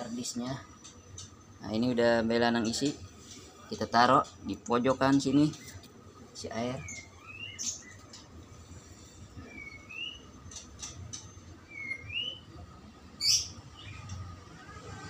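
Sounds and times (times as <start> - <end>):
small bird chirping: 4.2 - 8.4, 9.4 - 12.5, 13.2 - 14.6.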